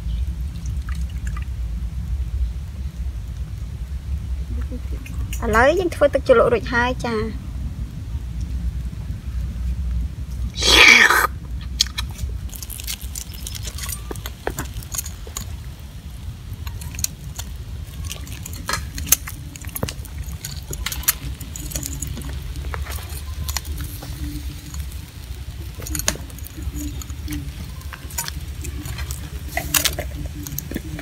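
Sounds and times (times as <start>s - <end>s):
charcoal fire crackling: 0.0s - 31.0s
steady low rumble: 0.0s - 31.0s
metal tongs clicking on grill: 16.6s - 31.0s.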